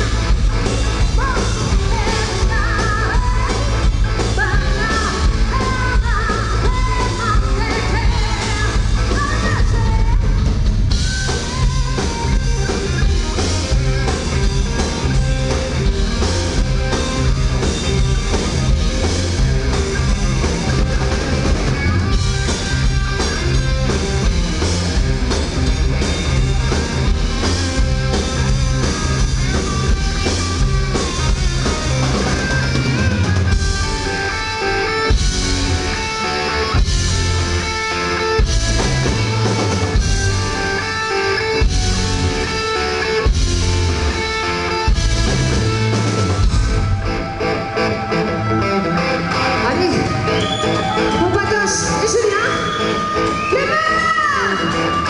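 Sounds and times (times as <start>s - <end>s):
drums: 0.0s - 55.0s
electric guitars: 0.0s - 55.0s
woman singing: 1.0s - 10.4s.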